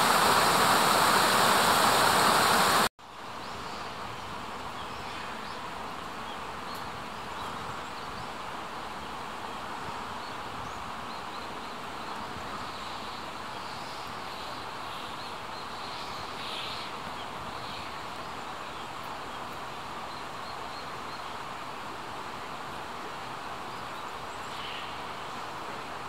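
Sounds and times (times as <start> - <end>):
rushing hiss: 0.0 - 2.9.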